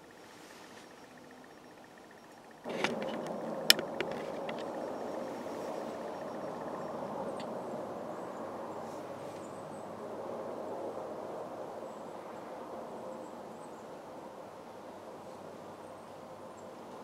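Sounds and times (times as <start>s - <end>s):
faint high chirps: 0.0s - 9.9s
steady rushing hiss: 0.0s - 17.0s.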